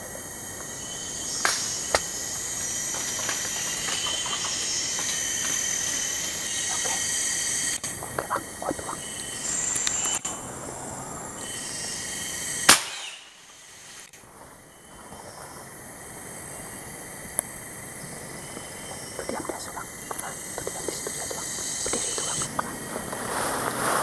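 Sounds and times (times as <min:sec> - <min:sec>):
high-pitched hum of insects: 0:00.0 - 0:24.0
rifle shot crack: 0:12.7 - 0:13.2.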